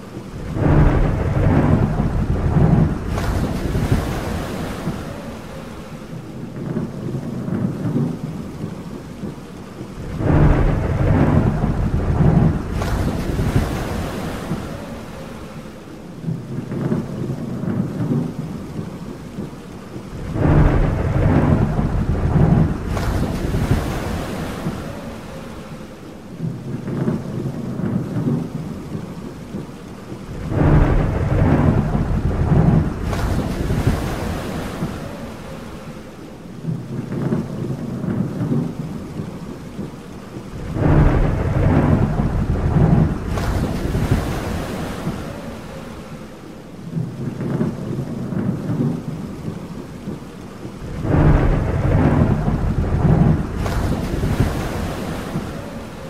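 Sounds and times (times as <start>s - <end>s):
rolling thunder: 0.0s - 56.0s
steady rain: 0.0s - 56.0s.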